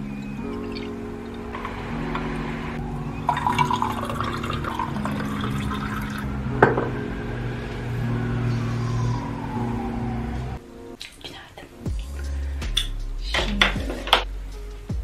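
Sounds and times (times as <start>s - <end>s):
water pouring into a glass mug: 3.3s - 6.3s.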